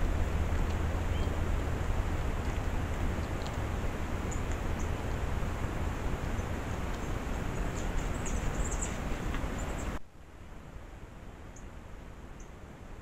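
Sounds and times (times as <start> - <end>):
low rumble and hiss: 0.0 - 13.0
faint high ticks and chirps: 12.3 - 12.6.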